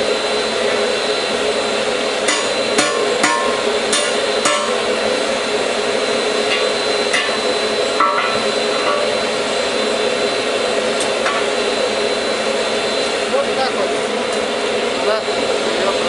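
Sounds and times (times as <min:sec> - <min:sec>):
forge blower rushing: 0:00.0 - 0:16.0
hammer striking hot steel: 0:02.2 - 0:05.4, 0:06.3 - 0:10.1, 0:10.8 - 0:12.0.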